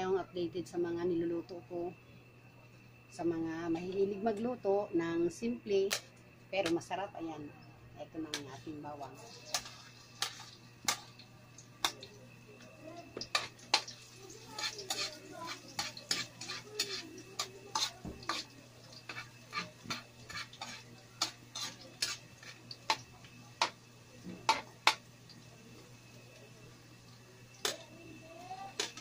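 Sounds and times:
metal ladle scraping a wok: 14.5s - 18.5s, 19.1s - 22.6s.

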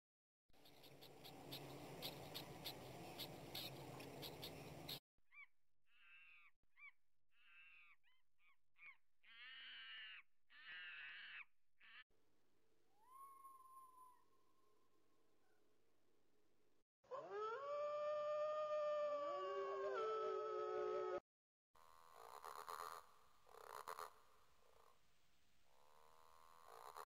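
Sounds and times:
noisy hiss with ticks: 0.6s - 5.0s.

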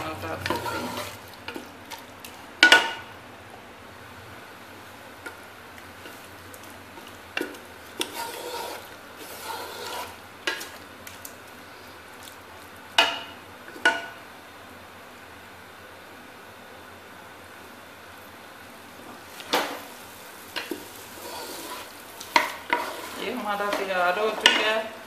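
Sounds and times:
wooden spoon scraping a pot: 0.0s - 1.7s, 7.0s - 10.8s, 20.6s - 24.7s
low sizzle: 0.0s - 25.0s.

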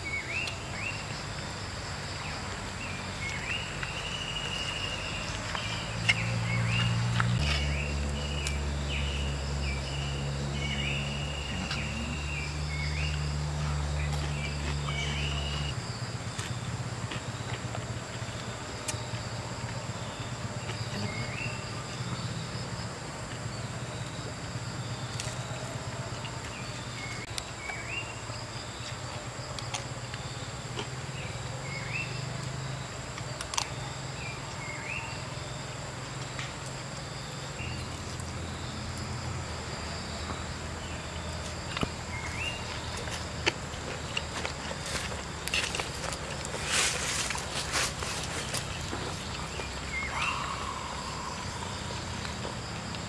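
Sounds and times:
high insect drone: 0.0s - 53.0s
bird rising call: 49.9s - 51.9s.

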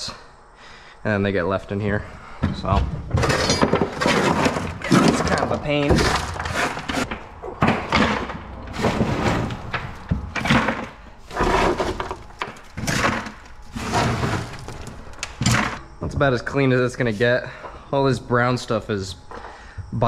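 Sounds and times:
rocks clattering into bucket: 3.1s - 15.8s
rocks scraping on plastic: 3.2s - 15.8s.

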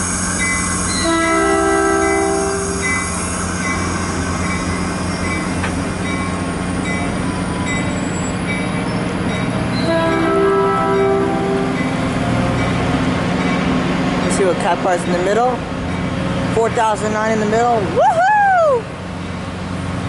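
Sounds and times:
high wheel squeal: 0.0s - 12.0s
train wheels rumbling on rails: 0.0s - 20.0s
train horn chord: 0.9s - 2.8s, 9.8s - 11.9s.

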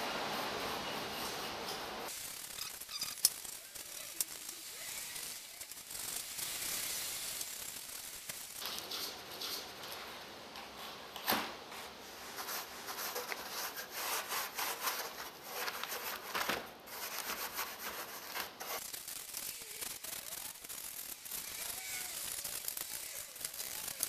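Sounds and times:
brush scrubbing: 12.0s - 16.3s, 16.9s - 18.8s.

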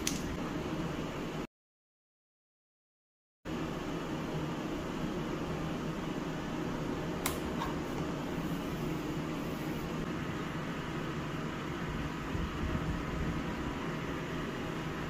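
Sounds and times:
sharp click: 0.0s - 0.3s
room hum and hiss: 0.0s - 1.5s, 3.5s - 15.0s.

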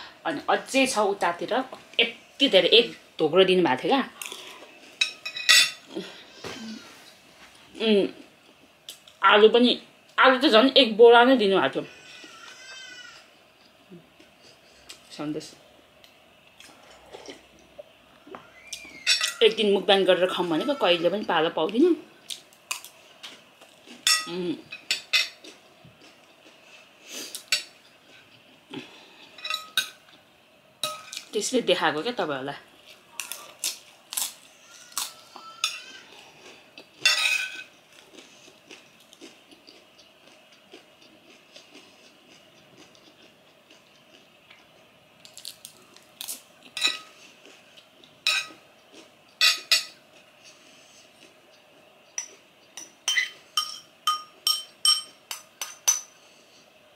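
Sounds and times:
cutlery clinking on ceramic plate: 37.0s - 37.7s, 48.3s - 48.6s, 52.2s - 56.1s
chewing: 37.9s - 46.4s.

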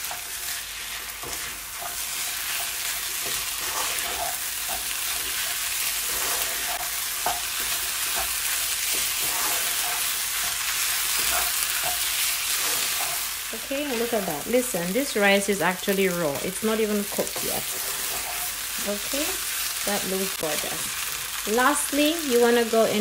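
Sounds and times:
spatula scraping a pan: 0.0s - 14.4s, 16.3s - 18.8s
food sizzling in a pan: 0.0s - 23.0s.

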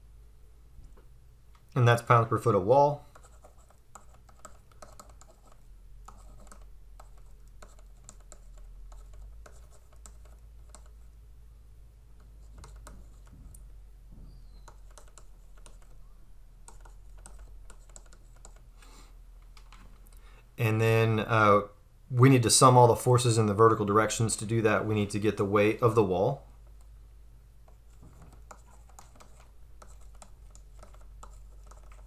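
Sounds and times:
low steady hum: 0.0s - 32.0s
stylus scratching on tablet: 1.9s - 11.2s, 12.1s - 13.4s, 14.4s - 18.8s, 27.6s - 32.0s.

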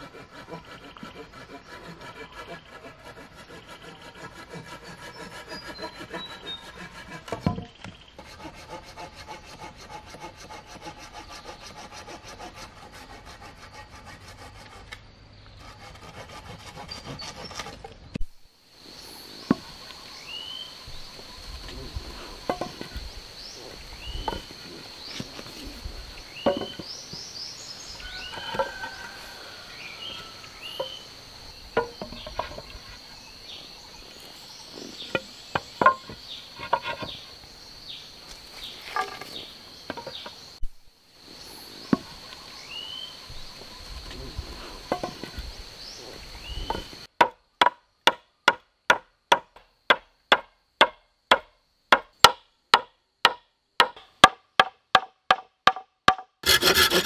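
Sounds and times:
wooden poles clattering: 7.0s - 8.1s, 22.4s - 23.1s, 26.4s - 27.0s, 31.7s - 33.0s, 35.0s - 37.3s, 38.6s - 40.4s, 44.9s - 45.5s
high insect drone: 18.4s - 47.2s
mallet driving wooden pegs: 31.7s - 32.7s, 35.1s - 37.1s, 46.7s - 57.0s.

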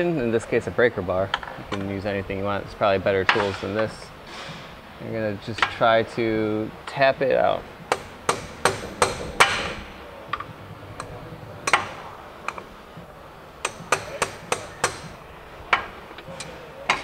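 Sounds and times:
hammer striking metal bar: 7.9s - 10.0s, 11.0s - 12.7s, 13.6s - 17.0s.

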